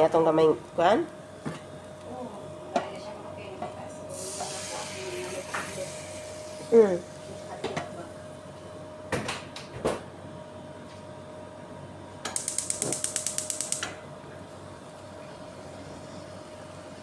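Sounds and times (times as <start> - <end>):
gas stove igniter clicking: 12.3 - 14.0.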